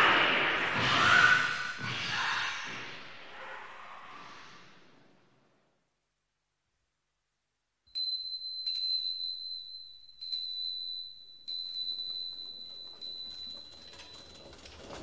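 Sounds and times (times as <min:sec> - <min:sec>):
high-pitched bell ringing: 0:07.9 - 0:15.0.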